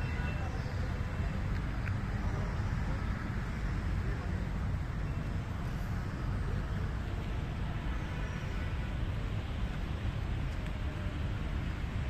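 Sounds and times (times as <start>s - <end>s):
low rumbling outdoor noise: 0.0s - 12.0s.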